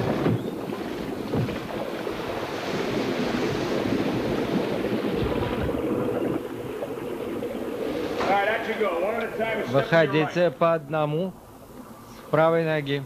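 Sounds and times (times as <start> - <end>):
water rushing and churning: 0.0 - 10.6.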